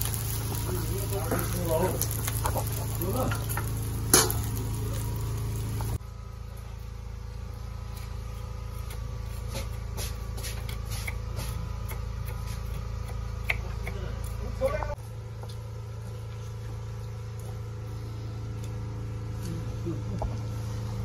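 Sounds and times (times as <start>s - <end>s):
meat sizzling in a wok: 0.0s - 6.0s
steady low hum: 0.0s - 21.0s
steel plate lid clanking: 3.3s - 4.6s
knife chopping on wooden board: 8.7s - 14.9s.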